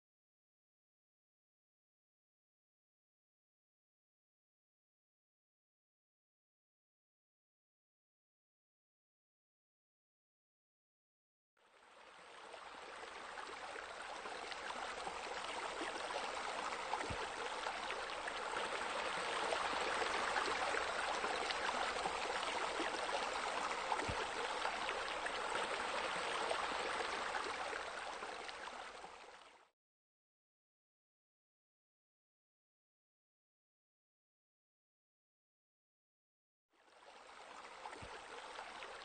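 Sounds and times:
flowing water: 11.6s - 29.7s, 36.8s - 39.0s.

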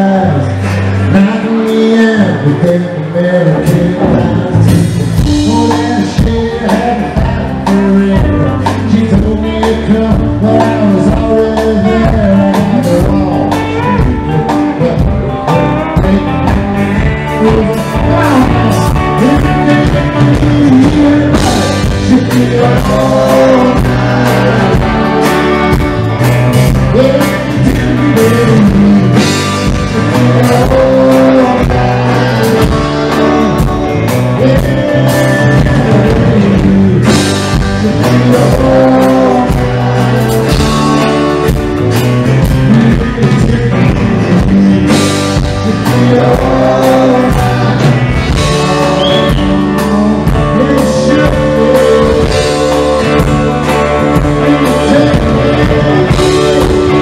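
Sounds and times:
drums: 0.0s - 57.0s
electric guitar: 0.0s - 57.0s.

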